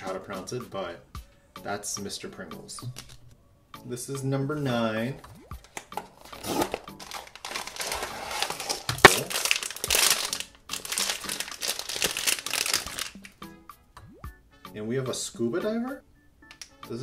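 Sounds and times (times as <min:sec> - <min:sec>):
foil bag crinkling and tearing: 0:06.2 - 0:13.4.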